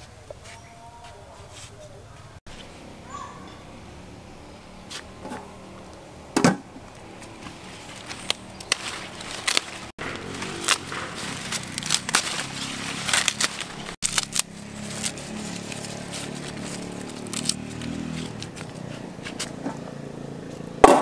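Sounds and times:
leafy branches rustling: 0.0s - 20.8s
branch cracking: 7.0s - 19.6s.

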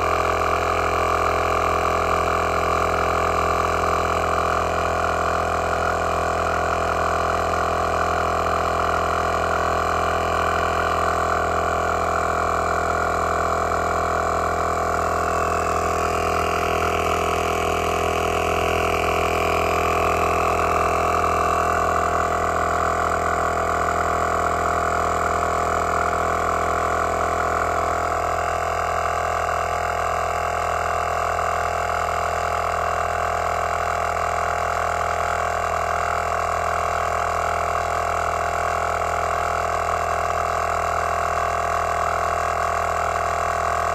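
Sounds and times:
air compressor running: 0.0s - 43.9s.

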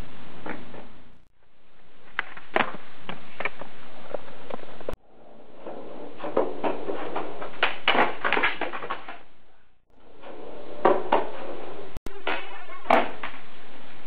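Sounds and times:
skateboard wheels rolling on concrete: 1.9s - 14.0s
skateboard pops: 2.1s - 4.9s
skateboard clacks: 2.1s - 9.3s.

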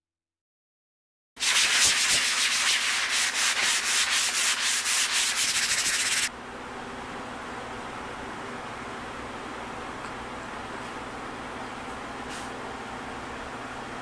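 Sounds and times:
hand sanding wood: 1.4s - 6.3s.

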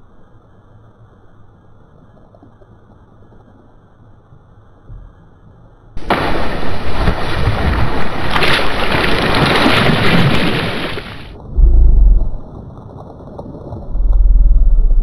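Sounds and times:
fish splashing in water: 6.0s - 11.4s.

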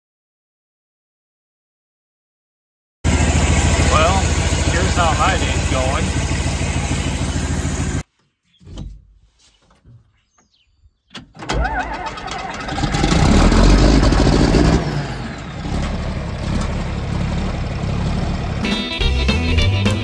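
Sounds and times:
pickup engine running: 3.1s - 8.0s, 11.7s - 19.6s
tractor diesel engine starting: 3.1s - 8.0s, 11.3s - 20.0s.

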